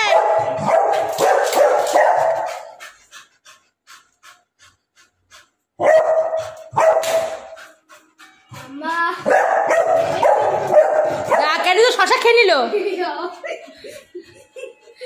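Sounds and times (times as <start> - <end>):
dog barking: 0.0 - 2.8, 5.8 - 7.6, 9.3 - 12.0.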